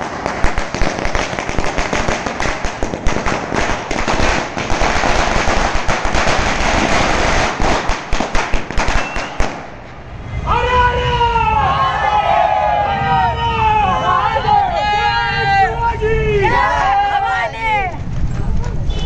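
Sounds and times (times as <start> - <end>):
firecrackers crackling: 0.0 - 10.3.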